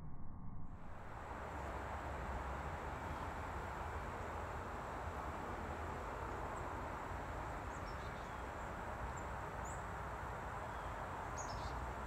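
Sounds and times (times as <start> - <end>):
low rumble: 0.0 - 1.2
outdoor background hiss: 0.8 - 12.0.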